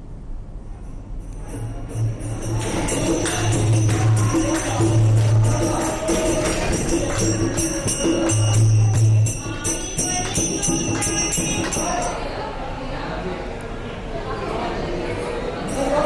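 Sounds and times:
jingling percussion: 0.8 - 12.4, 15.6 - 16.0
hand drum: 1.5 - 12.2
group singing devotional song: 2.2 - 12.2.

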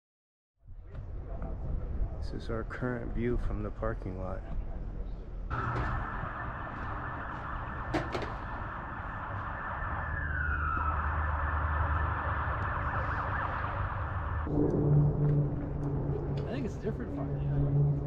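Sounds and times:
low hum: 5.1 - 18.0
emergency siren wailing: 5.5 - 18.0
steady rushing noise: 5.5 - 18.0.

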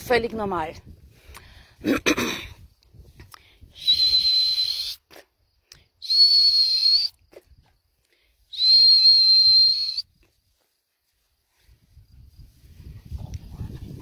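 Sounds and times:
dog whistle blasts: 3.8 - 5.0, 6.0 - 7.2, 8.5 - 10.0.

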